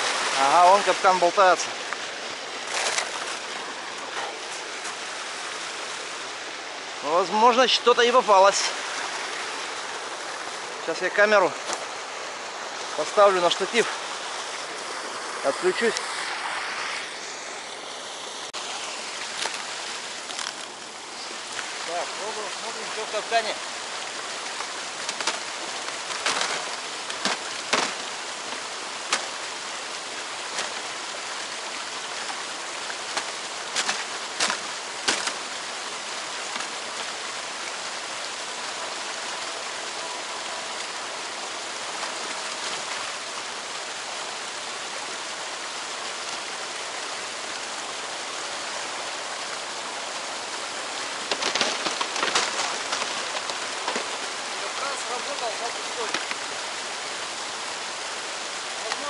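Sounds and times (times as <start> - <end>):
splashing and rustling: 0.0 - 59.0
water rushing: 0.0 - 59.0
sharp cracks and knocks: 24.6 - 29.4, 33.1 - 35.5, 51.2 - 54.9, 56.0 - 56.4.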